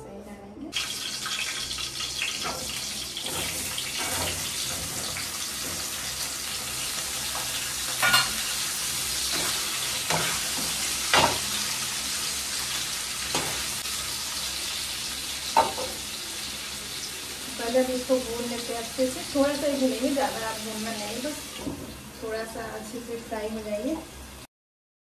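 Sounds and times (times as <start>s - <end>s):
pods sizzling in hot oil: 0.7s - 24.5s
metal spatula knocking pan: 9.3s - 11.5s.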